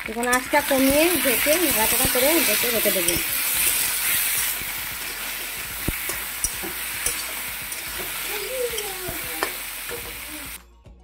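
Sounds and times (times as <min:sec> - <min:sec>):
food sizzling in oil: 0:00.0 - 0:10.6
spatula clicking against pan: 0:05.8 - 0:09.6.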